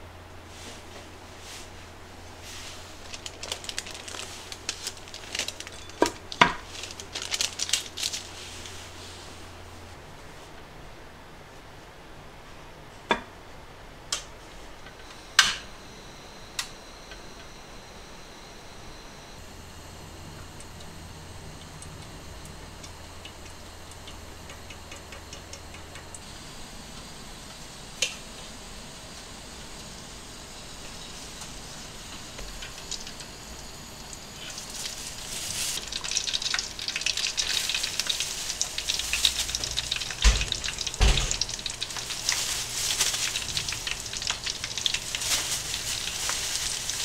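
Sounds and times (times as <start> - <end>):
paper crinkling: 2.5 - 9.0, 34.4 - 47.0
ticks and drips: 21.6 - 26.3, 35.8 - 42.5
oil pouring into a pot: 35.8 - 45.1.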